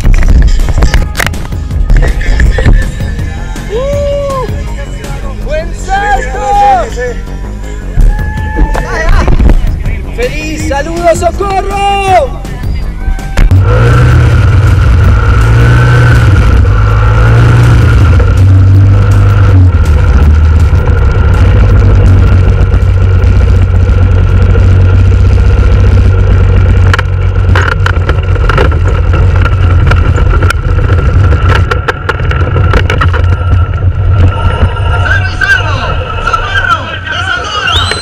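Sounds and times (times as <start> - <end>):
paratrike engine running: 12.6 - 38.0.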